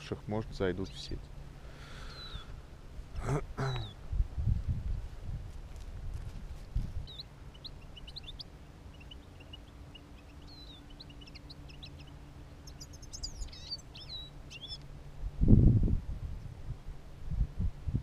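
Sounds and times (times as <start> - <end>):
faint low hum: 0.0 - 18.0
finches chirping: 0.6 - 2.6, 6.9 - 14.9.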